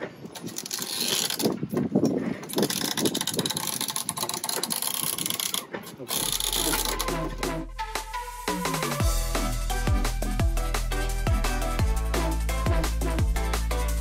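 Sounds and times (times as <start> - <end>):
wind on microphone: 0.1 - 5.5
winch pawls clicking: 0.3 - 7.3
music: 6.5 - 14.0.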